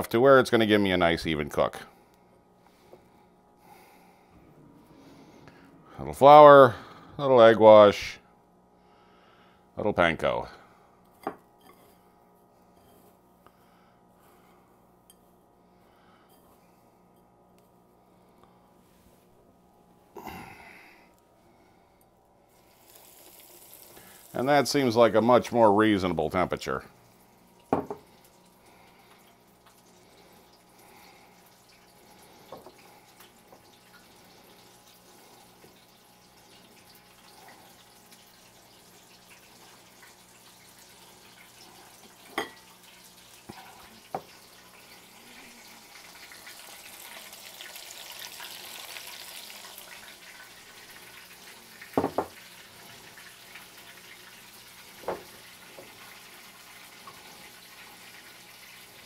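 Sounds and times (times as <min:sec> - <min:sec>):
food sizzling in oil: 0:22.5 - 0:24.4, 0:31.4 - 0:59.0.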